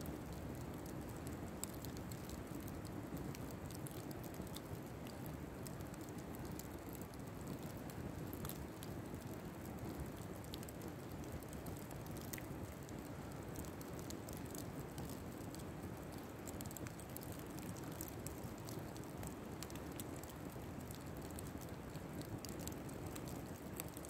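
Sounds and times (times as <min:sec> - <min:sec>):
fire crackling and popping: 0:00.0 - 0:24.0.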